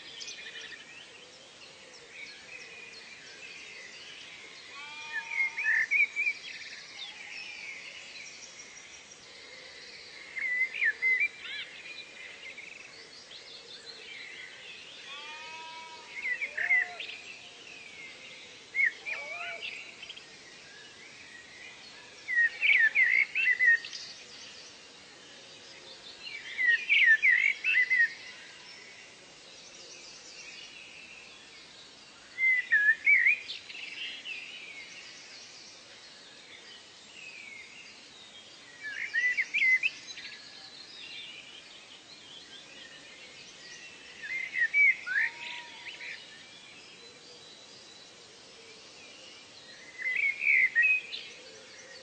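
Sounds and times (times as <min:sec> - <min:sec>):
songbird chirping: 0:00.0 - 0:52.0.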